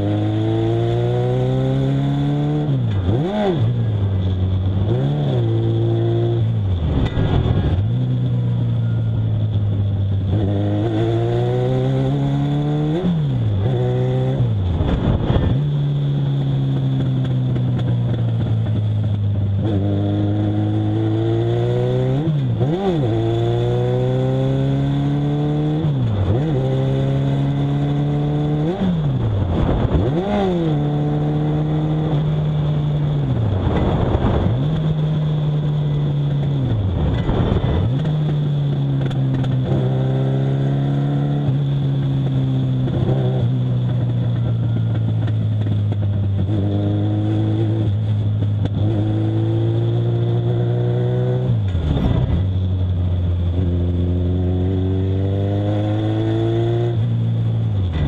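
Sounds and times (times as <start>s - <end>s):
racing car engine revving: 53.5s - 57.1s.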